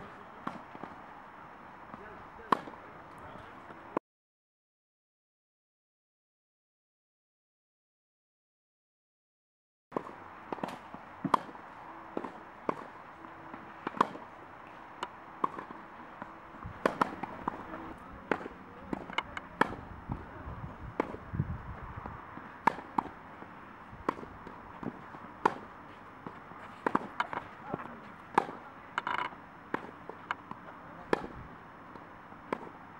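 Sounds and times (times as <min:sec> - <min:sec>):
racket striking tennis ball: 0:02.5 - 0:02.8, 0:10.0 - 0:20.2, 0:21.0 - 0:21.2, 0:22.0 - 0:32.8
ball bounces: 0:15.0 - 0:20.2, 0:24.0 - 0:31.4.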